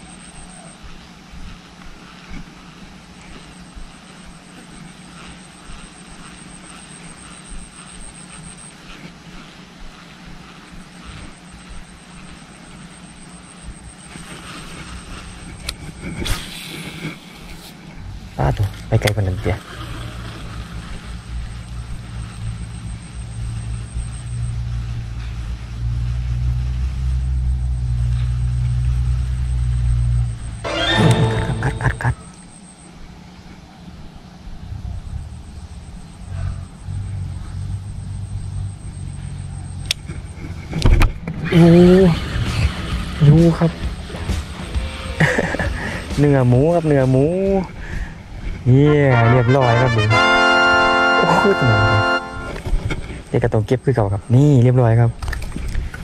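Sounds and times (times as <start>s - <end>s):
high pulsing whine: 0.0s - 56.0s
low engine-like drone: 0.0s - 56.0s
low steady rumble: 0.0s - 56.0s.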